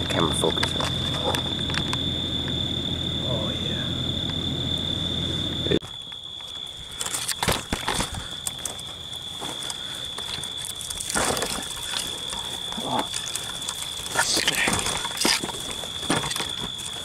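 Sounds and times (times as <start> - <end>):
thin high whine: 0.0 - 5.8
twigs snapping and crackling: 6.0 - 17.0.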